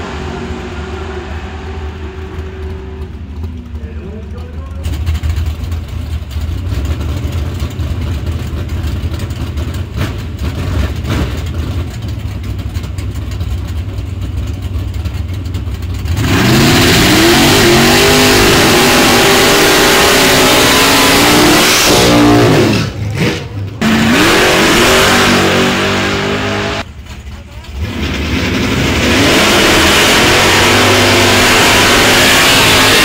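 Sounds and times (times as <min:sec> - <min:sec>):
drag cars launching full throttle: 0:00.0 - 0:12.6, 0:15.9 - 0:33.0
drag car engines idling: 0:00.0 - 0:16.6, 0:26.8 - 0:28.8.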